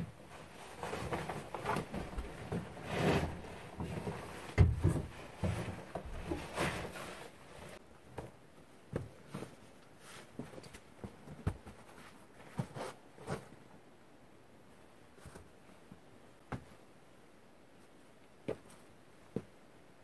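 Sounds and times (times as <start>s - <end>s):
clothing and backpack rustling: 0.1s - 7.8s
knocks and thumps: 3.8s - 6.6s.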